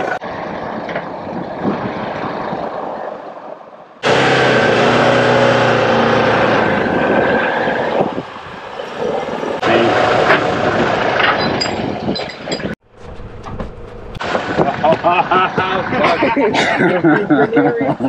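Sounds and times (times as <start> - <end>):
engines revving hard: 4.0 - 12.0, 12.9 - 17.3.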